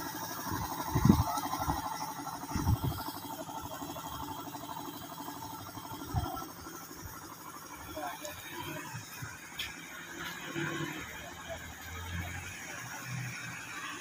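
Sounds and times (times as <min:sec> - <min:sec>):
baler mechanical rattle: 0:00.0 - 0:09.8.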